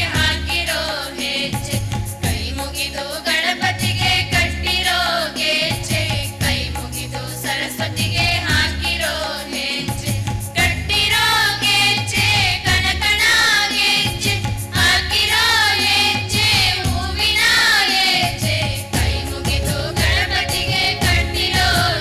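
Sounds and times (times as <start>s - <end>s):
women singing together: 0.0s - 22.0s
low musical accompaniment: 14.4s - 22.0s.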